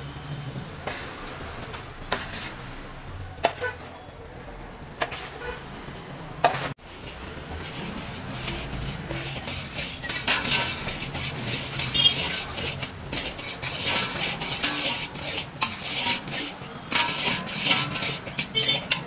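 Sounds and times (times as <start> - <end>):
metal spatula scraping a pan: 2.1 - 2.8, 3.4 - 4.0, 5.0 - 5.6, 6.4 - 19.0.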